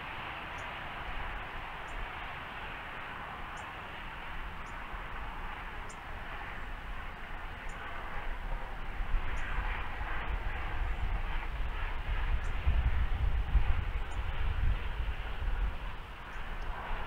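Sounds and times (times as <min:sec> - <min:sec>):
outdoor hiss with low rumble: 0:00.0 - 0:17.0.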